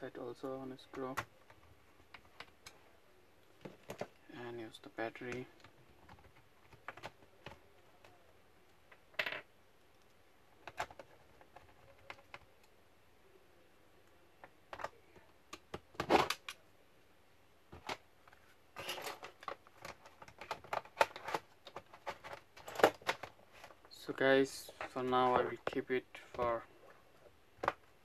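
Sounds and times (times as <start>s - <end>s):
plastic laptop case clicks and knocks: 15.5s - 16.6s.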